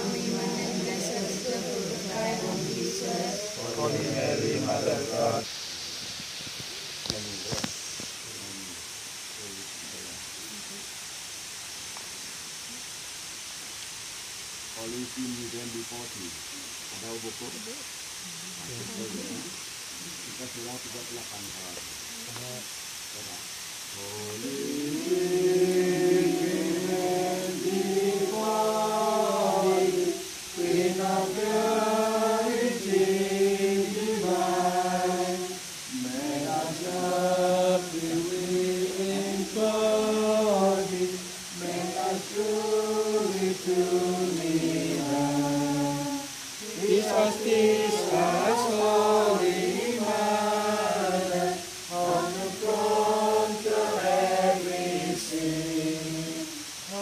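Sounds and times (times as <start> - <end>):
group singing a hymn: 0.0 - 5.5, 24.0 - 57.0.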